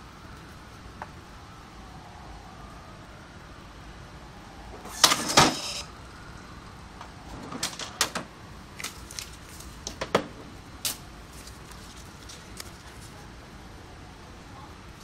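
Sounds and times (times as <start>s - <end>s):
thermal receipt printer printing: 4.9s - 5.9s
receipt paper crackling and tearing: 8.8s - 9.9s, 10.9s - 13.2s.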